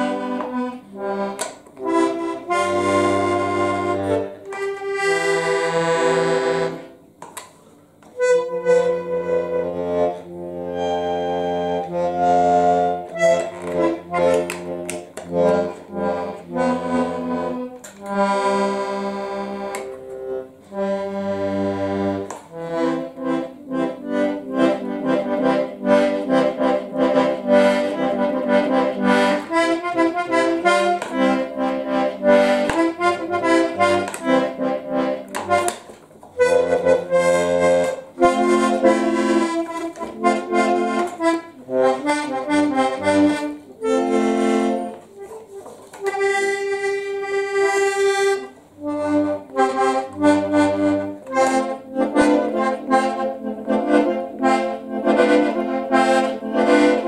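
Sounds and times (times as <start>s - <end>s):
button accordion playing: 0.0s - 57.0s.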